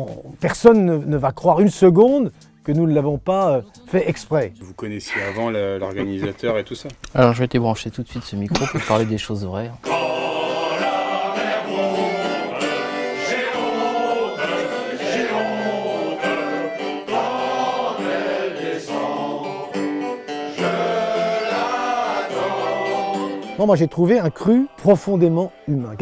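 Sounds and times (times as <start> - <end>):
accordion: 9.8 - 26.0.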